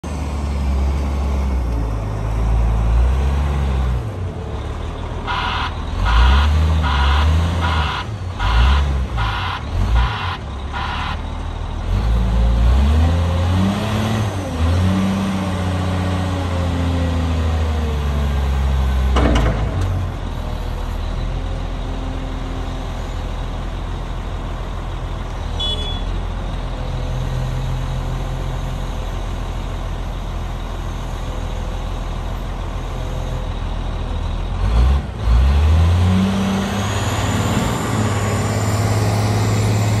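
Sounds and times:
diesel engine revving: 0.0s - 40.0s
reversing alarm beeping: 5.3s - 11.4s.

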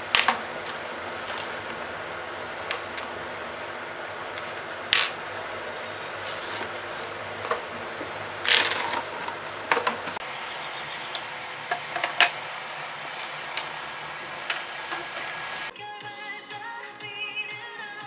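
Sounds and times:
pencil case being rummaged: 8.4s - 10.2s.

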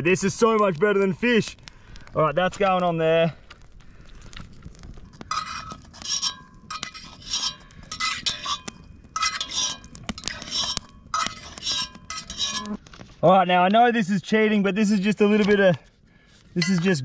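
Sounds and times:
metal fork clinking on cast iron: 5.3s - 12.8s, 16.6s - 16.9s.

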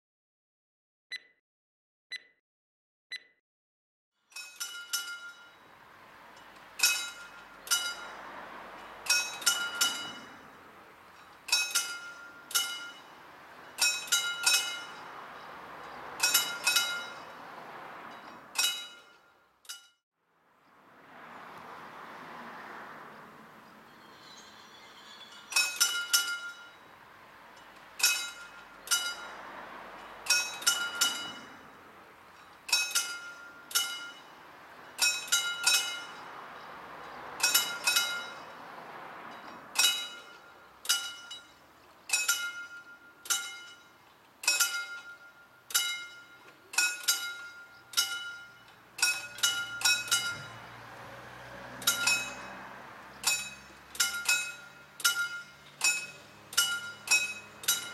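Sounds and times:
level crossing bell ringing: 4.4s - 17.5s, 37.4s - 38.6s, 42.2s - 50.8s, 51.7s - 52.6s, 53.2s - 57.9s.

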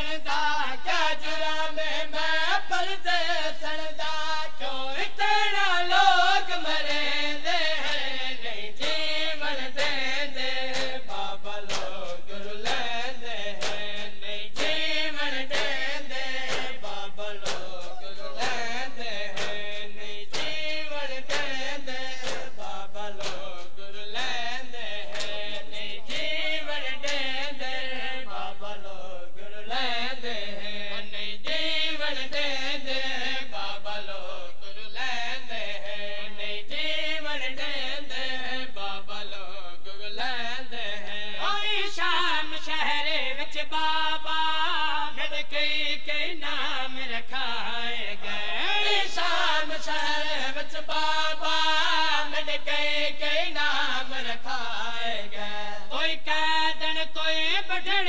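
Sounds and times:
men singing a wavering chant: 0.0s - 58.0s
sharp slaps: 9.8s - 26.4s, 27.0s - 27.3s.

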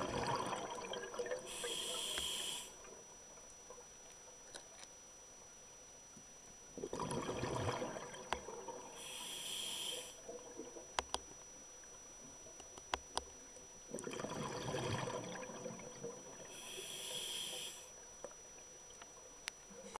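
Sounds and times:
diver breathing through regulator: 1.5s - 2.8s, 9.0s - 10.2s, 16.5s - 17.9s.

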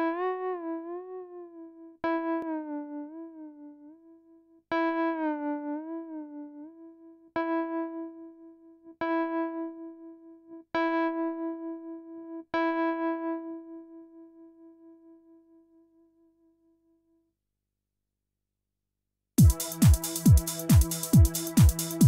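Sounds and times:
synthesizer keyboard note: 19.4s - 22.0s.

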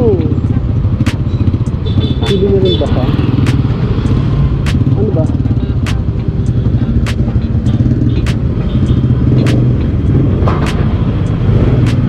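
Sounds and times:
scooter engine idling: 0.0s - 11.6s
sharp ticking: 0.0s - 12.0s.

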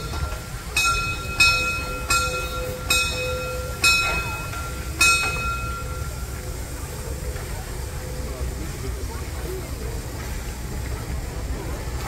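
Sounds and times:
metal bell ringing: 0.0s - 6.2s
steam locomotive rumble: 0.0s - 12.0s.

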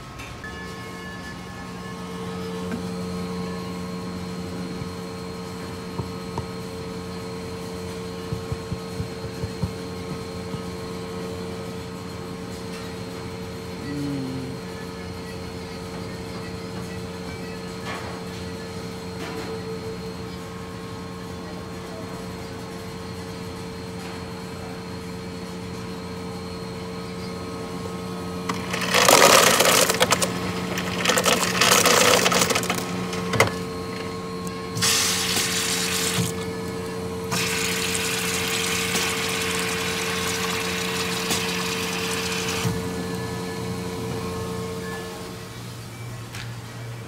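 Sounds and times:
drink pouring into cup of ice: 28.5s - 32.9s, 37.3s - 42.7s
fountain machine humming: 28.5s - 43.9s.

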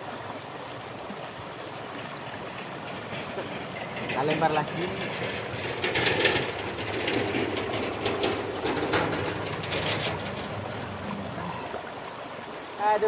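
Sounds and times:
rushing river: 0.0s - 13.0s
bridge clattering and rattling: 2.9s - 11.6s.

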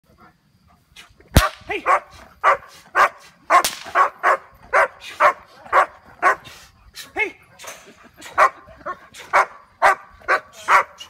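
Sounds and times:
dog barking: 1.8s - 6.5s, 8.4s - 11.0s.

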